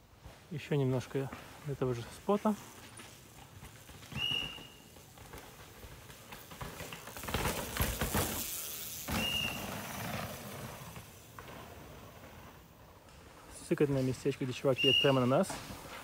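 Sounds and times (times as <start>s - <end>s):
mountain bike rattling over rocks: 0.5s - 16.0s
whistle blast: 4.1s - 4.8s, 9.1s - 9.7s, 14.8s - 15.3s.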